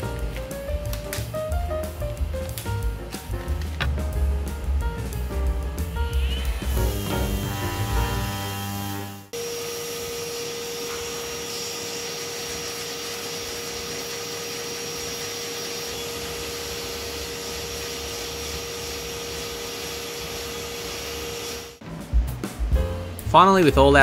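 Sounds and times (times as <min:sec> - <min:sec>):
background music: 0:00.0 - 0:09.1, 0:21.8 - 0:24.0
vacuum cleaner running: 0:05.8 - 0:21.9.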